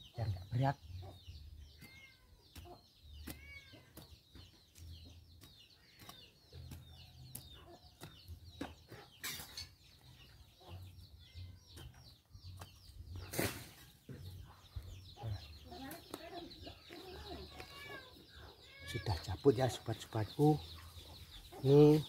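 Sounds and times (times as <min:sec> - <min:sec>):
small birds chirping: 0:00.0 - 0:22.0
chickens clucking: 0:00.6 - 0:18.8
metal bar chopping into soil: 0:12.6 - 0:13.8.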